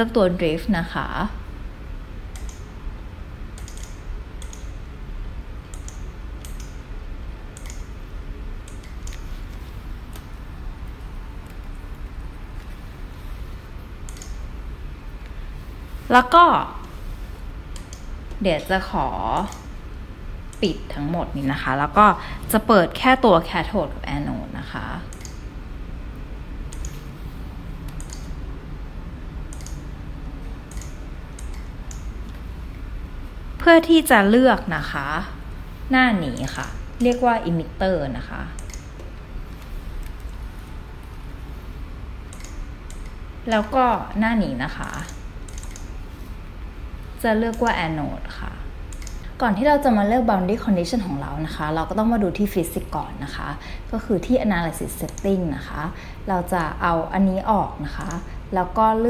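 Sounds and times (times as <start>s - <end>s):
low steady hum: 0.0s - 59.0s
keyboard keystrokes: 2.3s - 2.7s, 3.6s - 4.8s, 5.6s - 6.8s, 7.5s - 8.0s, 8.6s - 9.3s, 14.0s - 14.4s, 25.1s - 25.4s, 26.7s - 27.0s, 27.8s - 28.4s, 29.5s - 29.9s, 30.7s - 32.4s, 38.6s - 39.2s, 42.3s - 43.7s, 44.8s - 46.0s, 48.9s - 49.3s
mouse clicks: 2.3s - 2.7s, 3.6s - 4.8s, 5.7s - 6.8s, 7.5s - 8.0s, 8.6s - 9.3s, 14.1s - 14.4s, 17.8s - 18.1s, 25.1s - 25.4s, 26.7s - 27.1s, 27.8s - 28.4s, 29.5s - 29.8s, 30.7s - 32.4s, 38.6s - 39.1s, 42.3s - 43.7s, 44.8s - 46.0s, 48.9s - 49.3s.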